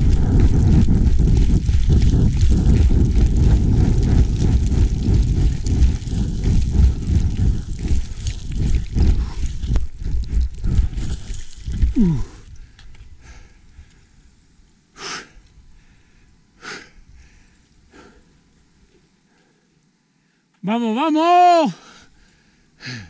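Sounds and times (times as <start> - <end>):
boots sliding on gravel: 0.0 - 12.2.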